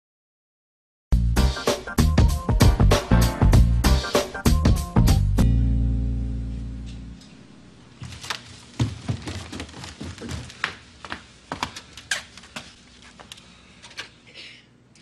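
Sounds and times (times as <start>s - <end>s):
footsteps on wooden floor: 8.0s - 13.3s.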